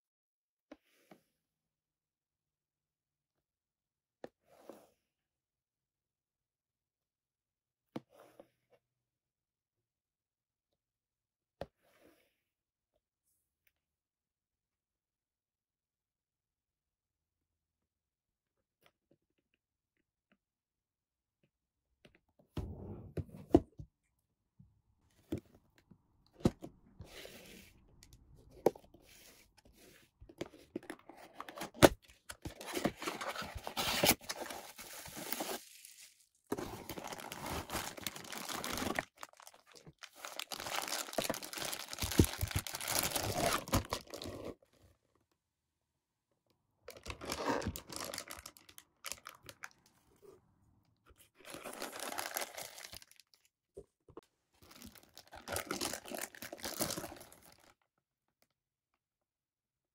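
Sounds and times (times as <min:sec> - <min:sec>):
plastic bag crinkling: 0:34.2 - 0:44.2, 0:51.5 - 0:53.3.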